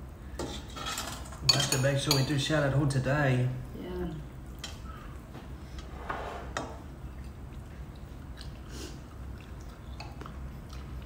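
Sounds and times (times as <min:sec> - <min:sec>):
spoons clinking in ceramic bowls: 0:00.4 - 0:02.4
soft chewing: 0:06.8 - 0:11.0.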